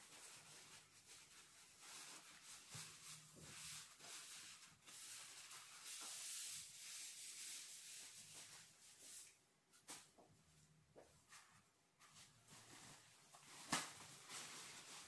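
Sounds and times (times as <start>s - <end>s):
paper towel scrubbing wet fur: 0.0s - 9.3s.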